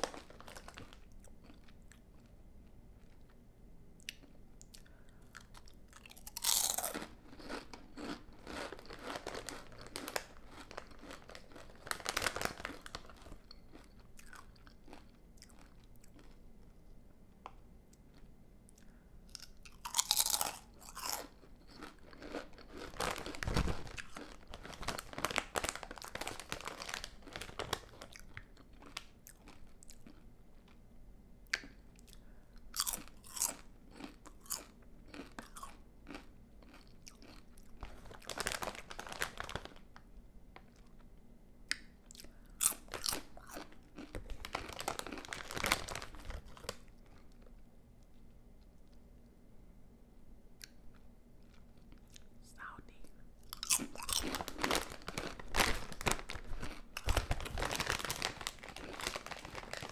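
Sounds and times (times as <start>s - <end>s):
potato chips crunching: 0.0s - 2.4s, 4.1s - 16.4s, 18.8s - 30.8s, 31.5s - 39.8s, 41.7s - 47.5s, 53.4s - 59.9s
crackly chewing: 0.0s - 3.4s, 4.0s - 30.8s, 31.4s - 39.8s, 41.7s - 49.0s, 53.4s - 59.9s.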